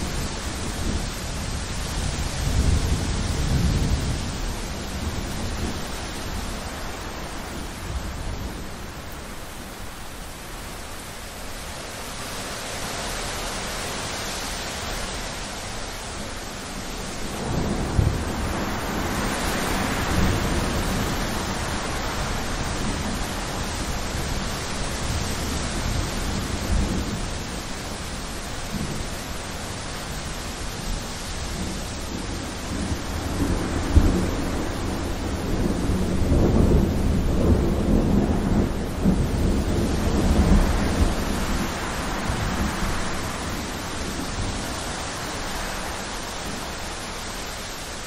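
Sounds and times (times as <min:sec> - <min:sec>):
heavy rain pouring: 0:00.0 - 0:48.0
thunder rumbling: 0:31.5 - 0:45.0.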